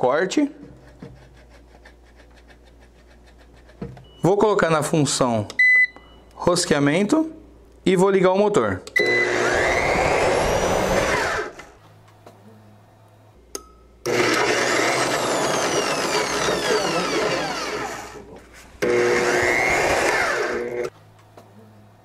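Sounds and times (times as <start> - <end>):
drill motor running under load: 9.0 - 11.7, 14.1 - 18.2, 18.8 - 20.9.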